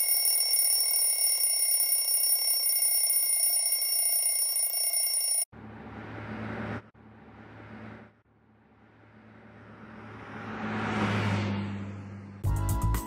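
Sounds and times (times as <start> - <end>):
electric alarm bell ringing: 0.0 - 5.5.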